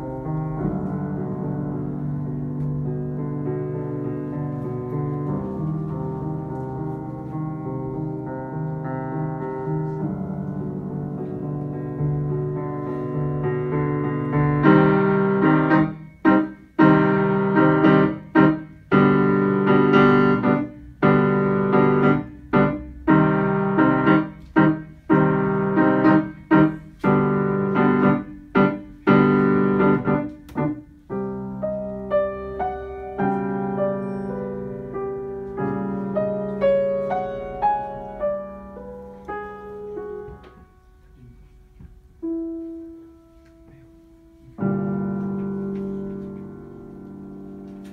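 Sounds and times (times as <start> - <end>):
grand piano playing: 0.0 - 47.9.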